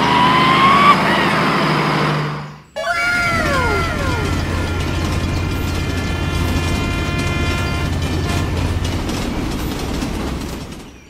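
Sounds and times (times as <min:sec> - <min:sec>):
toy train motor hum: 0:02.8 - 0:10.9.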